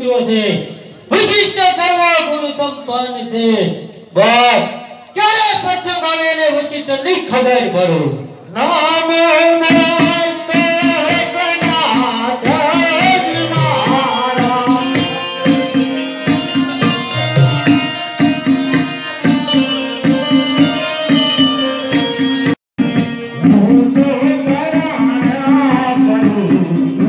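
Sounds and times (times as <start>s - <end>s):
hand drums beating: 9.7s - 27.0s
person singing: 10.4s - 22.4s, 23.1s - 27.0s
sustained instrumental notes: 11.9s - 26.5s.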